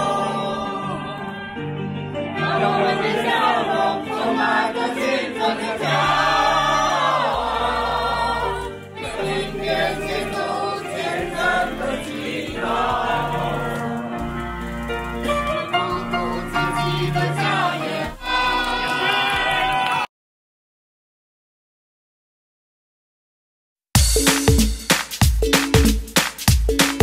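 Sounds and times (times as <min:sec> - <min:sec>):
amplified backing music: 0:00.0 - 0:19.5, 0:24.0 - 0:27.0
crowd singing in chorus: 0:00.0 - 0:19.6.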